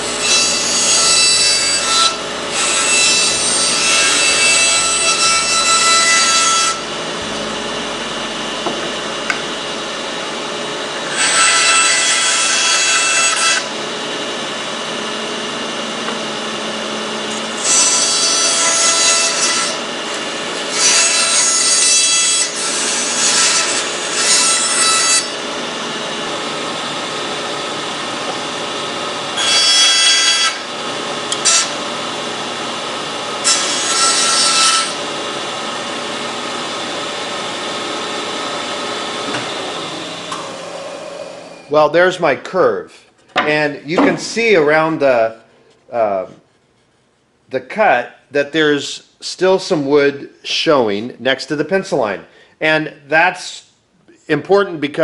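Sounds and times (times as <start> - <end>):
band saw cutting wood: 0.0 - 42.3.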